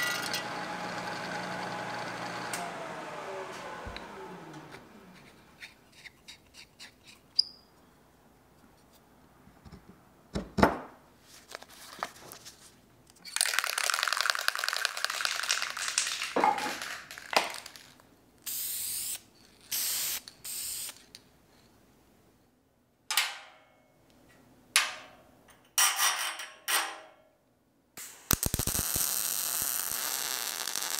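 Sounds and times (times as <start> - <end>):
aerosol can ball rattling: 13.2 - 18.0
aerosol spray hissing: 18.5 - 21.0.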